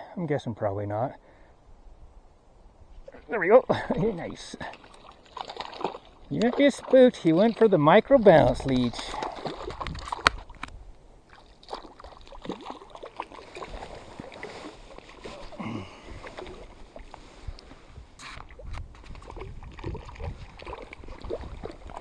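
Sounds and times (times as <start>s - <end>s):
fish splashing at surface: 4.6s - 7.0s, 11.3s - 15.4s.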